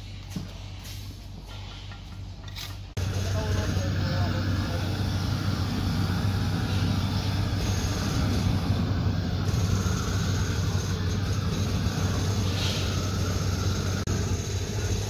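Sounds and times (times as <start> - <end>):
gas torch flame hissing: 3.0 - 15.0.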